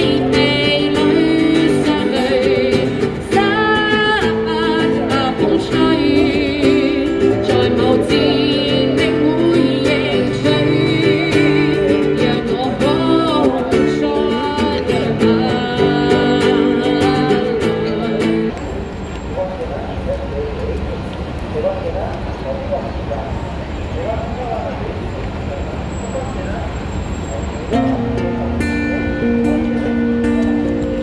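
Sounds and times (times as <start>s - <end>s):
woman singing with vibrato: 0.0s - 18.5s
strummed acoustic guitar: 0.0s - 18.6s, 27.7s - 31.0s.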